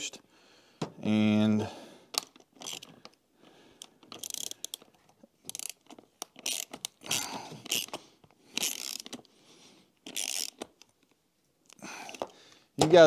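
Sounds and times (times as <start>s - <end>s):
ratchet wrench clicking: 4.1s - 4.8s, 5.5s - 8.0s, 8.6s - 9.2s, 10.0s - 10.9s.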